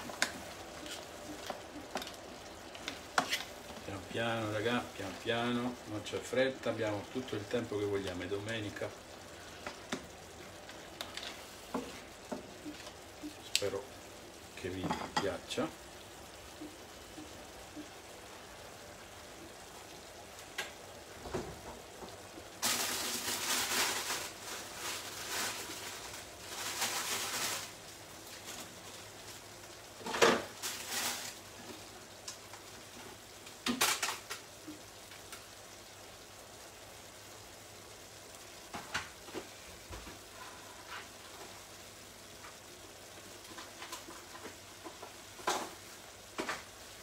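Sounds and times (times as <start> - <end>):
sauce sizzling in a pan: 0.0 - 47.0.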